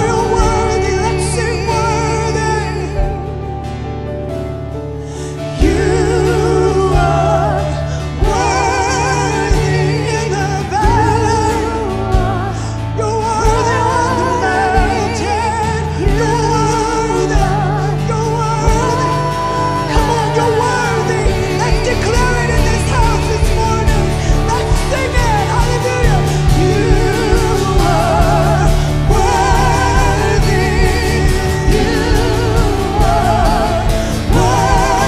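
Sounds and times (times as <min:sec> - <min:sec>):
woman singing with vibrato: 0:00.0 - 0:03.3, 0:05.5 - 0:35.0
electric guitar: 0:00.0 - 0:35.0
steady drum beat: 0:05.6 - 0:12.6, 0:18.6 - 0:35.0.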